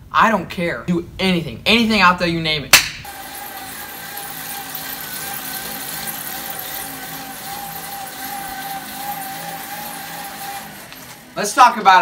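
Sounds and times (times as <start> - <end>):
bike trainer whirring: 3.0 - 12.0.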